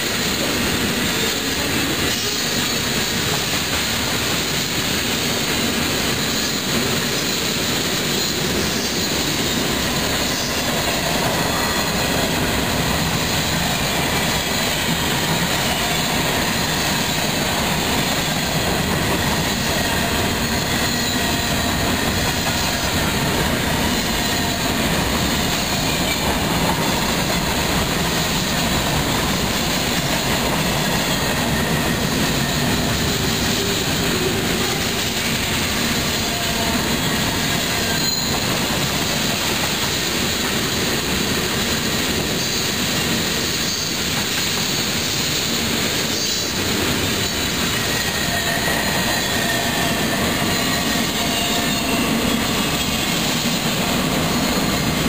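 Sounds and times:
train wheels rumbling and rattling: 0.0 - 55.0
faint wheel squeal: 36.4 - 38.5.

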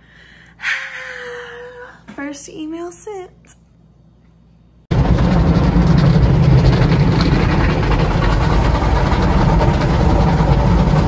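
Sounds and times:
car wash machinery running: 4.9 - 11.0.

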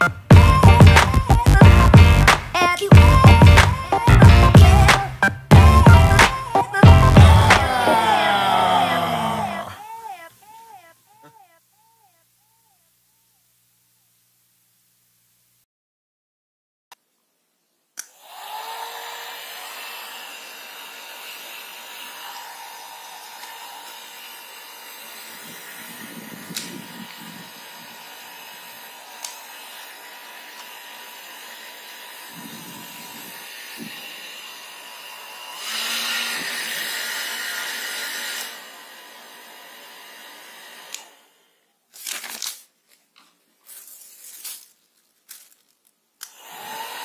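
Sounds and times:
hair dryer blowing air: 0.3 - 9.7, 18.0 - 41.6, 46.2 - 47.0
hair dryer switch click: 26.5 - 26.8, 29.2 - 29.4, 46.2 - 46.5.

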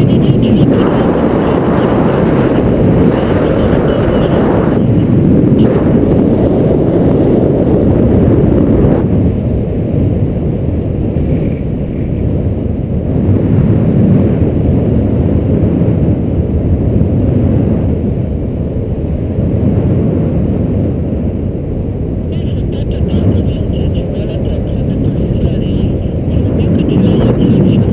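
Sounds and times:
wind buffeting camera microphone: 0.0 - 27.9.

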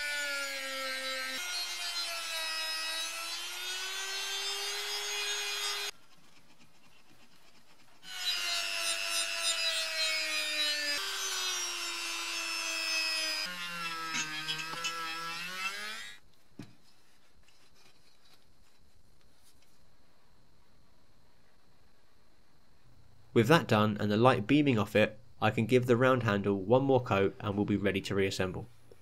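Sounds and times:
rotary tool motor whine: 0.0 - 5.9, 8.0 - 16.2.

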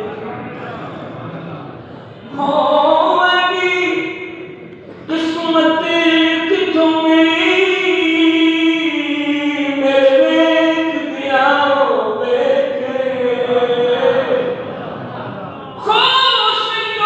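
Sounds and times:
man singing through loudspeakers: 2.1 - 14.6.

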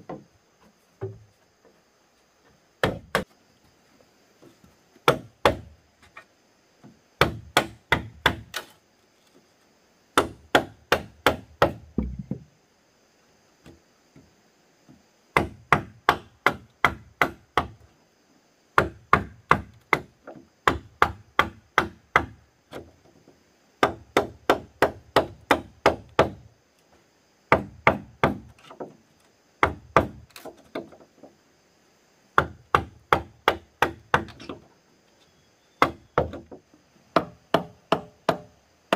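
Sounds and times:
chopping wood: 2.8 - 3.3, 5.0 - 5.7, 7.2 - 8.7, 10.2 - 12.5, 29.6 - 30.9, 35.8 - 36.5.

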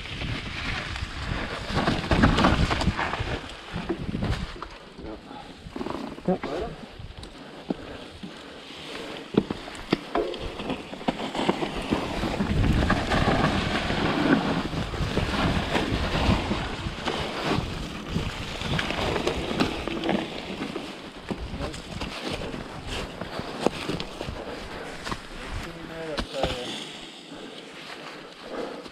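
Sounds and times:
wind rushing over microphone: 0.0 - 5.8, 11.7 - 20.5
tyres rolling through mud: 0.0 - 28.9
bike clicks and knocks: 9.3 - 14.5.

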